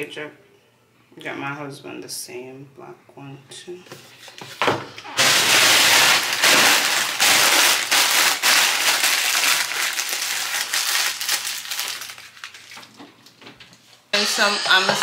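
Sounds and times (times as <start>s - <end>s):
plastic packaging crinkling: 5.2s - 13.9s.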